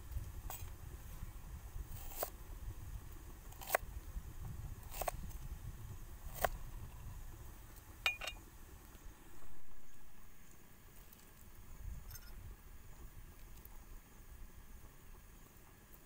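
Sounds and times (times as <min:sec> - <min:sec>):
knife chopping on wooden board: 0:04.9 - 0:05.2
knocks with short ring: 0:08.0 - 0:08.4.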